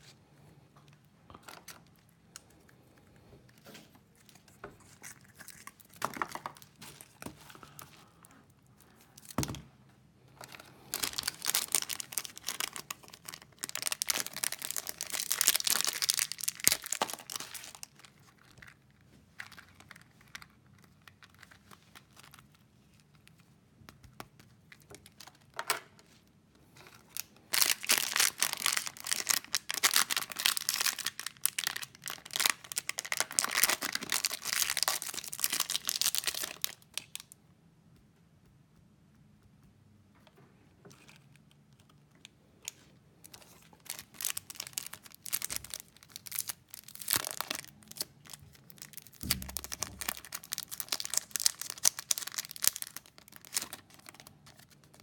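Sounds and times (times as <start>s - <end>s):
plastic wrappers crinkling and tearing: 3.5s - 9.4s, 10.4s - 23.4s, 24.7s - 25.7s, 26.8s - 37.4s, 42.7s - 55.0s
small clicks and handling noises: 39.4s - 43.9s.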